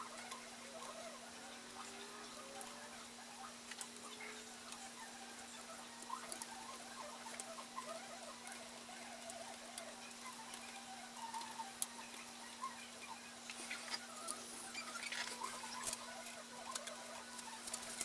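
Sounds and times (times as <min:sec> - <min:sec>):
squeaky chirps: 0:00.0 - 0:18.0
small clicks: 0:03.6 - 0:12.6.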